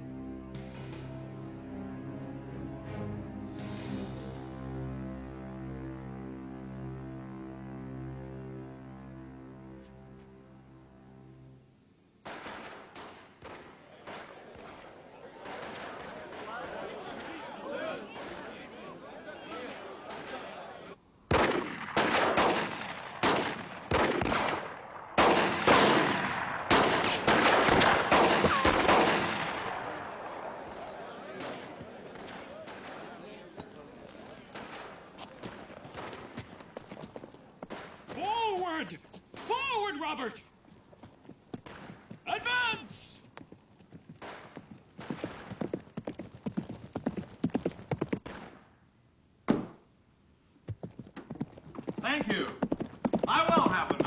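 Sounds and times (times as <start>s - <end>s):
gunshots with echo: 12.2s - 16.7s, 21.3s - 33.1s, 34.5s - 35.1s
horse hooves clip-clopping: 33.6s - 39.4s, 40.6s - 48.4s, 50.6s - 54.0s.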